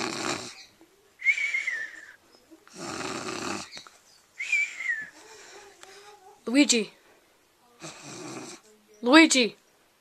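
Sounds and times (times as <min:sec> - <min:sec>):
person snoring: 0:00.0 - 0:00.6, 0:02.7 - 0:03.7.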